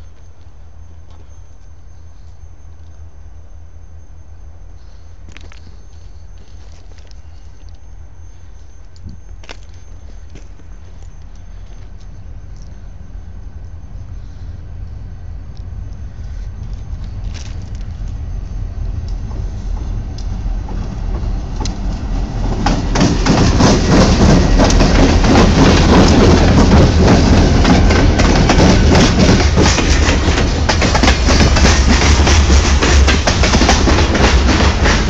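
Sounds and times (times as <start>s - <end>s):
diesel locomotive rumble: 0.0s - 35.0s
train wheels clacking on rail joints: 19.0s - 35.0s.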